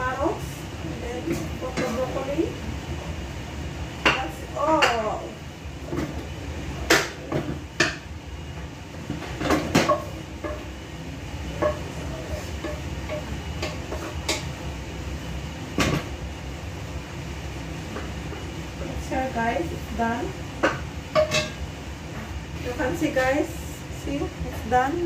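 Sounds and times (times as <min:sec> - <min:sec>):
spatula clanking on pan: 0:09.4 - 0:10.7, 0:11.5 - 0:14.5, 0:20.6 - 0:21.6.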